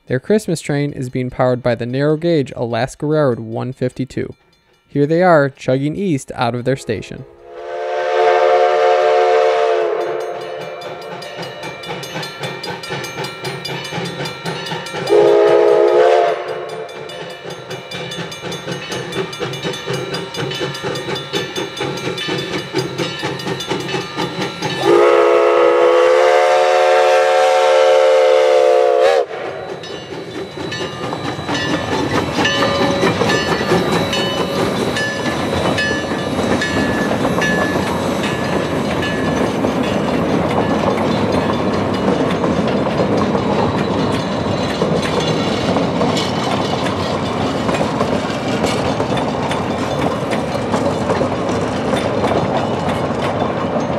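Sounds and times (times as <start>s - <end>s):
steam locomotive chuffing: 6.8s - 53.9s
train rumble: 6.8s - 53.9s
steam whistle blasts: 7.4s - 10.8s, 15.1s - 16.9s, 24.8s - 29.6s.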